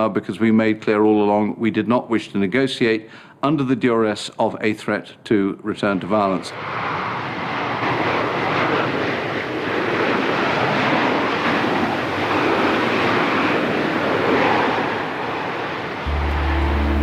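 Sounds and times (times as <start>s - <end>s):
jet plane landing: 5.7s - 17.0s.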